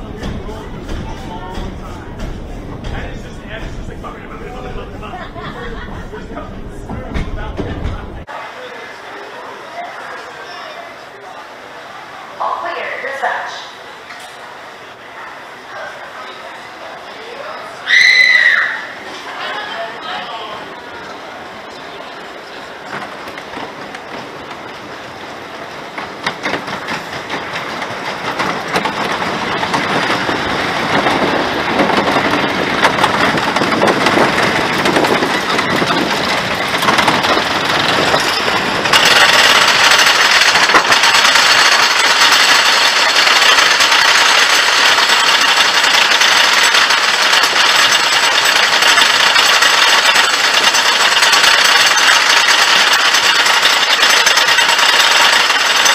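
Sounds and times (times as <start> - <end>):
roller coaster rolling on wooden track: 0.0 - 12.7, 14.1 - 55.9
lift-hill chain clatter: 22.9 - 55.9.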